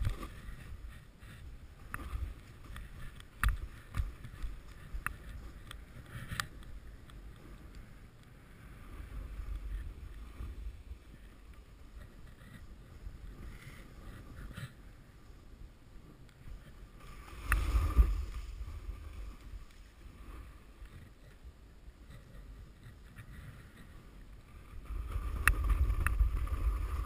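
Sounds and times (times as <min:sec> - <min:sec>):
snowboard scraping over snow: 0:16.5 - 0:27.0.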